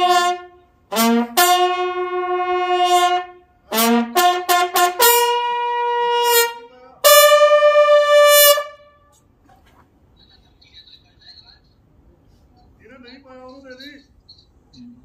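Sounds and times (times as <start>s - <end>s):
bugle call: 0.0s - 9.2s.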